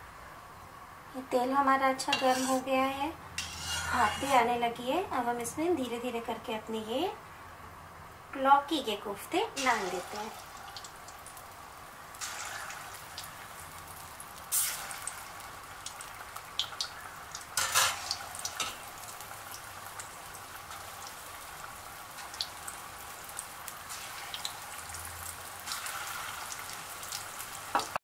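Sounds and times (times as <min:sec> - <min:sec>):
deep-frying sizzle with crackles: 0:00.0 - 0:28.0
louder bursts of sizzling: 0:09.5 - 0:10.8, 0:11.7 - 0:15.6, 0:22.8 - 0:28.0.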